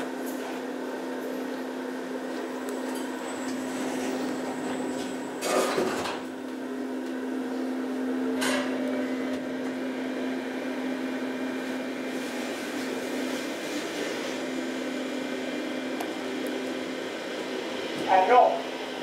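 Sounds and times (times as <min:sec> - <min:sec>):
elevator humming: 0:14.4 - 0:19.0.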